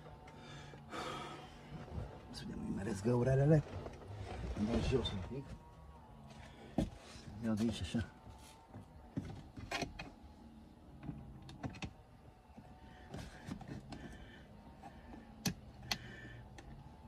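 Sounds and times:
clicks and knocks of dash parts: 10.9 - 17.0.

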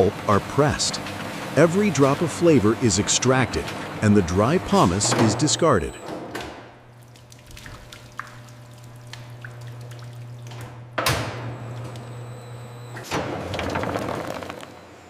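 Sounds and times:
press machine humming: 0.0 - 7.4, 8.1 - 15.0
juice dripping: 6.8 - 10.9
pulp splattering: 7.0 - 10.5.

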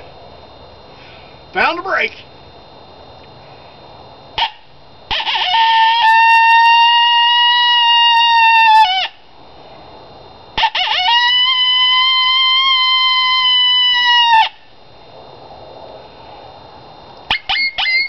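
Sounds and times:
horn call toot: 4.4 - 9.1, 10.6 - 14.6
horn call howling: 4.4 - 9.3, 10.6 - 14.7, 17.3 - 18.0.

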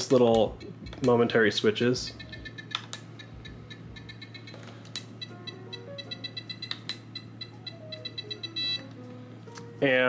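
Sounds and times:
short electronic beeps: 0.5 - 0.9, 2.0 - 8.9
plastic switch clicks: 2.2 - 3.6, 6.6 - 7.1.

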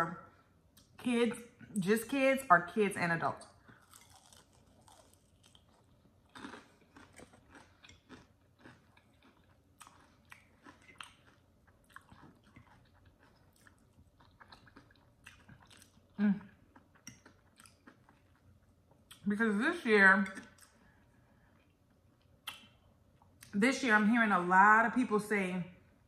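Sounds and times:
crunchy chewing of fried chicken: 3.4 - 19.2.

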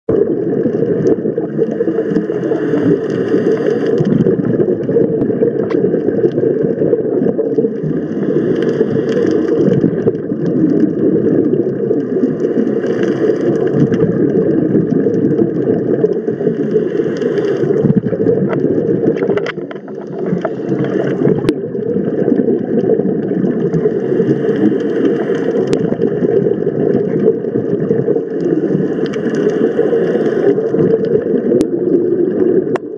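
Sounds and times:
exhaled bubbles hissing: 0.1 - 32.9
diver breathing through regulator: 1.5 - 4.2, 7.7 - 10.0, 12.0 - 14.0, 16.0 - 18.1, 19.8 - 21.5, 23.6 - 26.0, 28.1 - 31.0.

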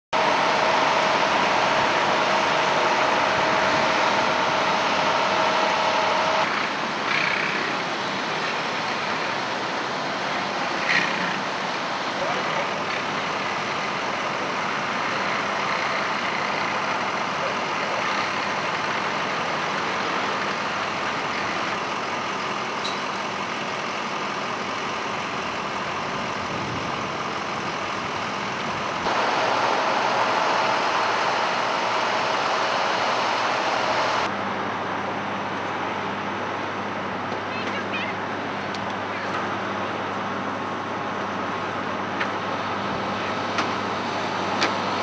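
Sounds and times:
steady whine: 0.2 - 6.6, 29.0 - 34.6
engines droning: 0.2 - 45.0.

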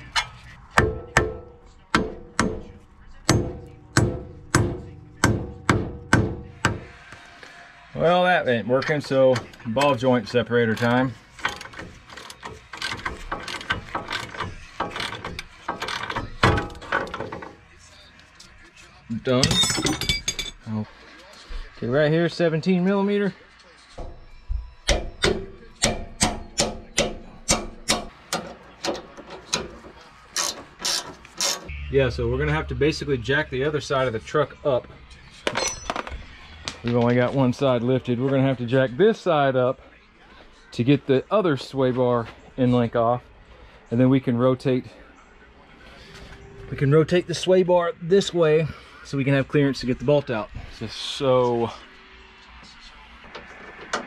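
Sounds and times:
hammer striking steel: 0.1 - 7.0, 24.0 - 29.7.

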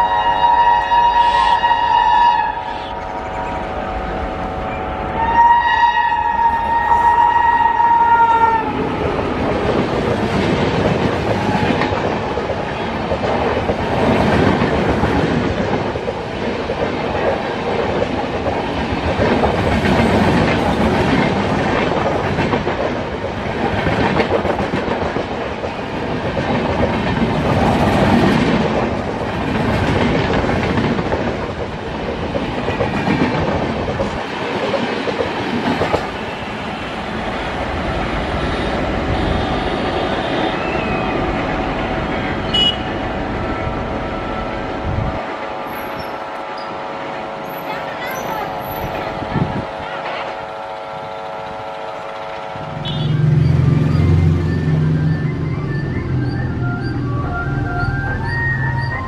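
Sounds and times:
train rolling rumble: 0.0 - 59.0
train wheels clattering: 8.8 - 36.5.

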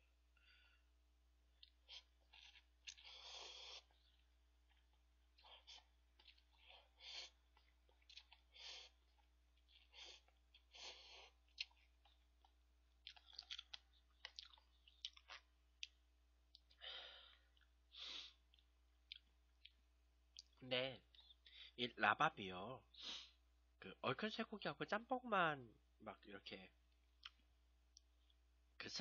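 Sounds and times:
person breathing: 0.4 - 1.0, 16.7 - 18.4, 21.4 - 21.8
wet chewing clicks: 1.6 - 16.8
person slurping noodles: 1.8 - 4.0.

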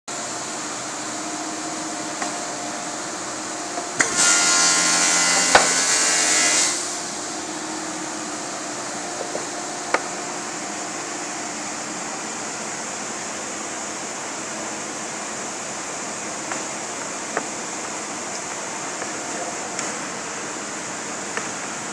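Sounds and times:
workshop hum: 0.1 - 21.9
table saw cutting wood: 1.6 - 11.6.

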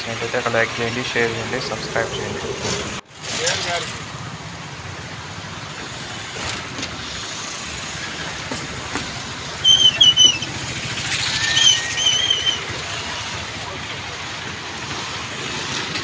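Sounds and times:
traffic on bridge: 0.0 - 16.0
rushing floodwater: 0.1 - 16.0.

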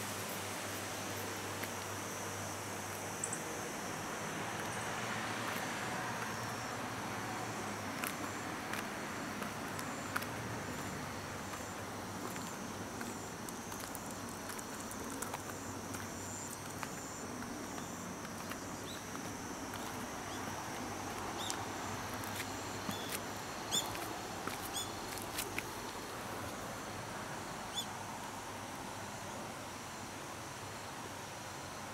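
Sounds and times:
insects trilling: 0.0 - 31.9
outdoor hiss: 0.0 - 31.9.

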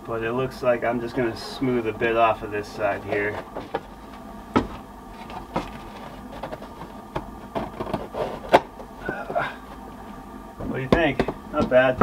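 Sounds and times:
small scrapes and ticks: 5.1 - 7.0.

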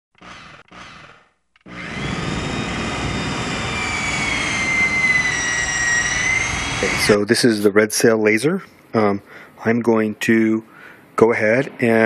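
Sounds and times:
power tool motor whirring: 0.1 - 7.2.

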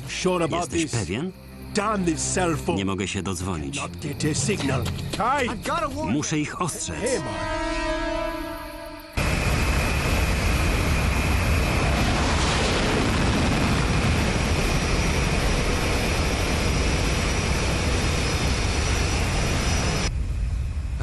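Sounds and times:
jet engine noise: 9.2 - 21.0.

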